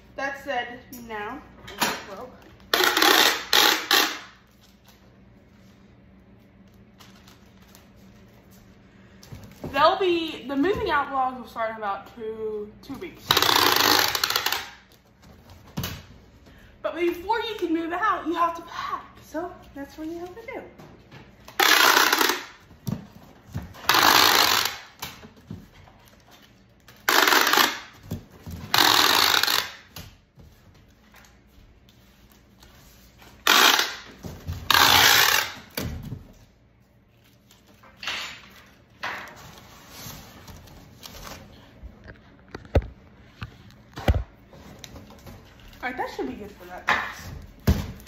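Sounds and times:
packing tape screeching: 0:02.7 - 0:04.4, 0:13.3 - 0:15.0, 0:21.5 - 0:22.6, 0:23.8 - 0:25.1, 0:26.8 - 0:28.0, 0:28.6 - 0:29.9, 0:33.4 - 0:35.8.

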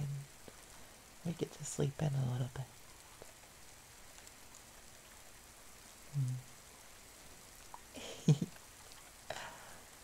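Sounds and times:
soft rain falling: 0:00.0 - 0:10.0
man humming: 0:06.2 - 0:06.5.

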